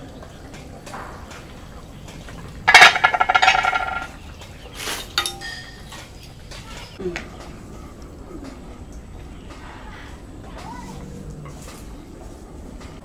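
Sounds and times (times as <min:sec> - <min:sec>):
metal pot lid clattering: 0:02.7 - 0:04.2
metallic clink: 0:02.7 - 0:04.2, 0:05.1 - 0:05.8.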